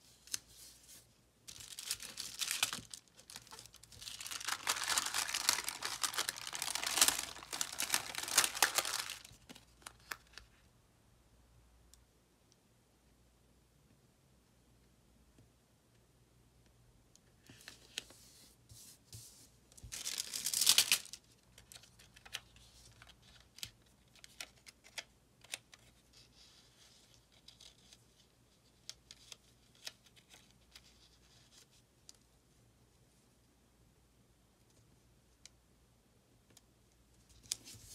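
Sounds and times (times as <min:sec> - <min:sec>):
paper rustling: 0:00.1 - 0:10.5, 0:18.8 - 0:23.7.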